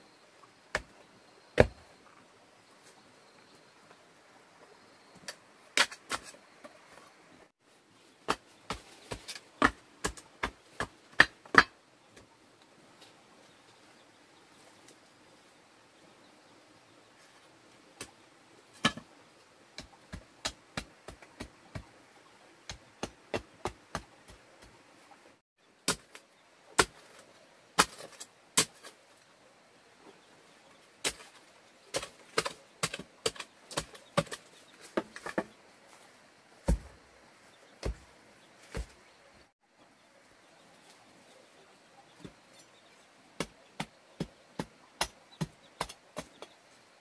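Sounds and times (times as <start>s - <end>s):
hoe chopping stony dirt: 0.7s - 0.9s, 1.6s - 1.8s, 5.8s - 6.3s, 8.2s - 11.8s, 18.8s - 19.1s, 19.8s - 21.9s, 22.7s - 24.7s, 25.8s - 26.2s, 26.8s - 27.2s, 27.8s - 28.9s, 31.0s - 35.6s, 36.6s - 37.0s, 37.8s - 39.0s, 43.4s - 46.6s.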